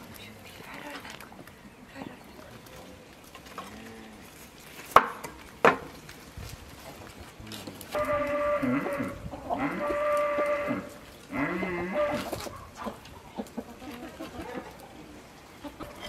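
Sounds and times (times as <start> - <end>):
livestock bleating: 7.9 - 12.3.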